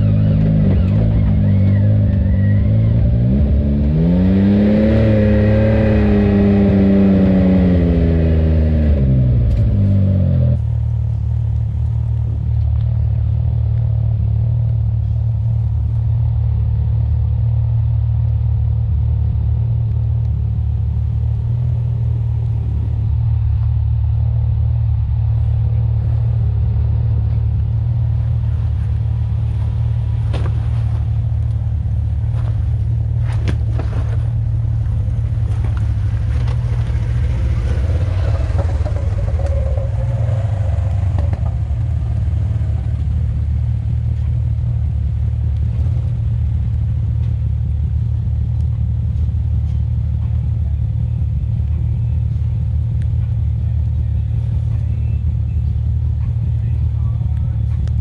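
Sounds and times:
engine running with deep rumble: 0.0s - 58.0s
sharp knocks and rattles: 35.5s - 42.8s.

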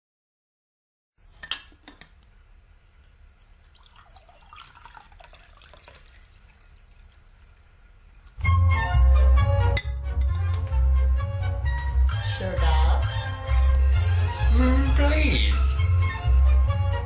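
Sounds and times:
tea trickling into cup: 3.0s - 8.5s
loud music: 8.5s - 17.0s.

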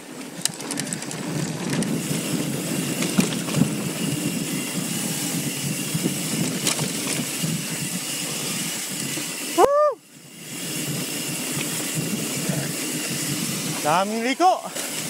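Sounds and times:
bike tyres rushing on dirt: 0.0s - 15.0s
bike knocks and rattles: 0.1s - 4.6s, 5.4s - 8.2s.

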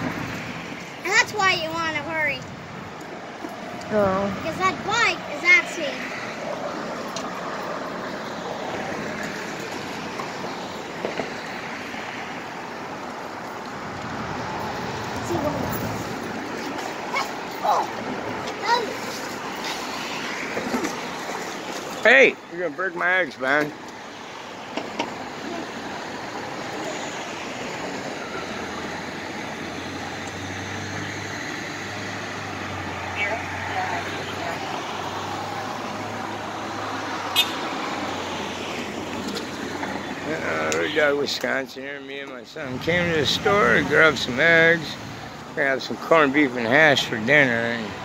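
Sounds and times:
traffic hiss: 18.5s - 48.0s.

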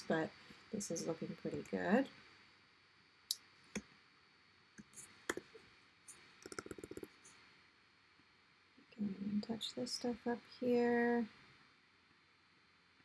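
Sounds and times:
computer mouse clicks: 6.4s - 7.1s.

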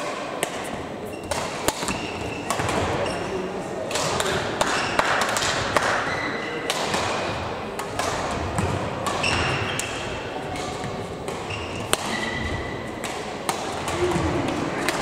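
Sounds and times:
racket hitting shuttlecock: 0.0s - 3.2s, 3.9s - 15.0s
shoes squeaking on court floor: 1.0s - 3.5s, 6.1s - 6.6s, 8.6s - 13.1s.

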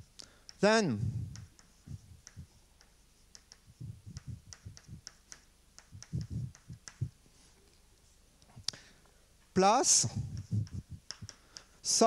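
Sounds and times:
chalk tapping on blackboard: 0.0s - 7.2s, 10.2s - 12.0s.

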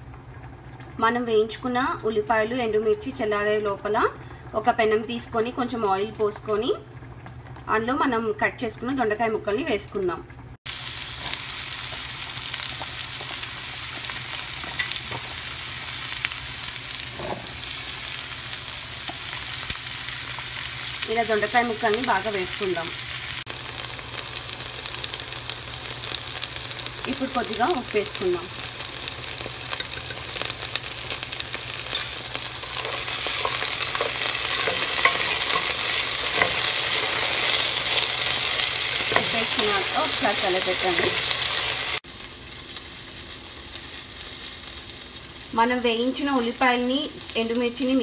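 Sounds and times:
vegetables sizzling in hot oil: 10.7s - 48.0s.

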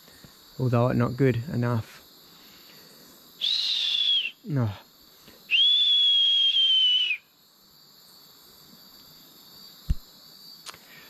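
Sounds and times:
faint night background: 0.0s - 11.0s
person whistling: 3.4s - 4.4s, 5.5s - 7.2s
short thump: 9.9s - 10.1s.

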